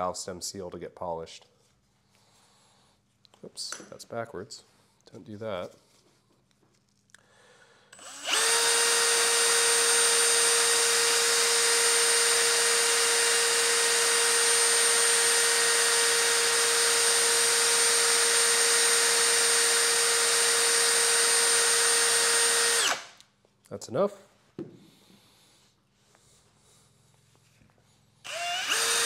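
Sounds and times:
electric drill whining: 7.9 - 23.2, 28.2 - 29.0.

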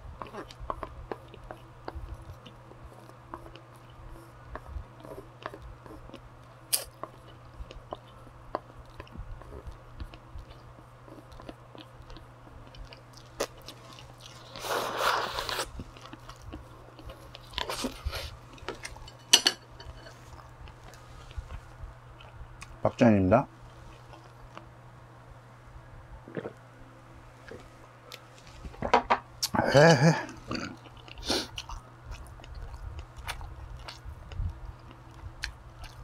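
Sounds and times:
chewing: 0.2 - 22.8, 23.7 - 24.7, 30.2 - 36.0.

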